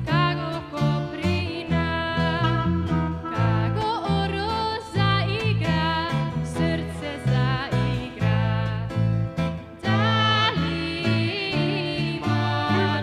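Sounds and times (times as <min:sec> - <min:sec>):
bass guitar notes: 0:00.0 - 0:13.0
strummed acoustic guitar: 0:00.0 - 0:13.0
clarinet melody: 0:02.2 - 0:04.8, 0:11.3 - 0:13.0.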